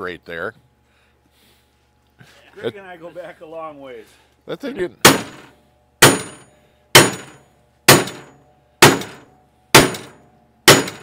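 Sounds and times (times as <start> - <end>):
sledgehammer striking steel bar: 5.0 - 11.0.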